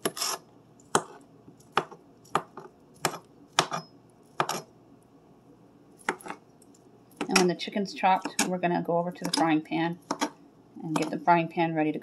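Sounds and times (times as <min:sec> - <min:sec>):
knife chopping on cutting board: 0:00.0 - 0:04.6, 0:06.0 - 0:06.4, 0:09.2 - 0:10.4.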